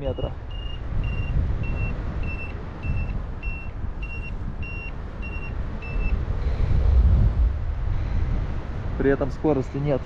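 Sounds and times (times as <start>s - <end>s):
variometer high beeps: 0.0s - 6.2s
wind on microphone: 0.0s - 10.0s.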